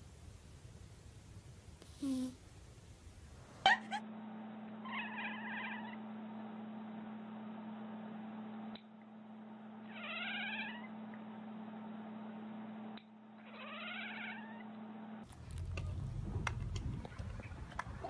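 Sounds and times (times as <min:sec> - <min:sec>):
steady low hum: 0:00.0 - 0:18.0
cat meowing: 0:04.9 - 0:06.0, 0:09.9 - 0:10.9, 0:13.5 - 0:14.6
low rumble: 0:15.2 - 0:18.0.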